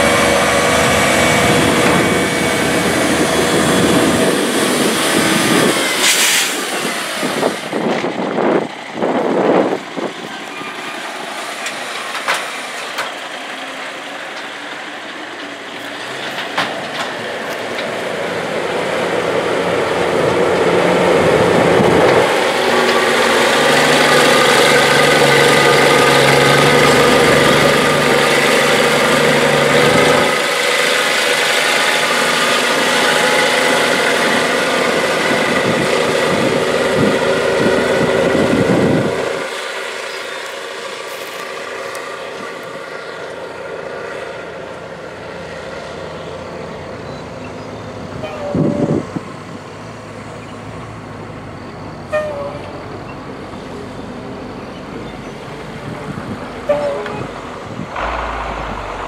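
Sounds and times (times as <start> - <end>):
tractor diesel engine under load: 0.0 - 59.0
short sounds: 57.9 - 59.0.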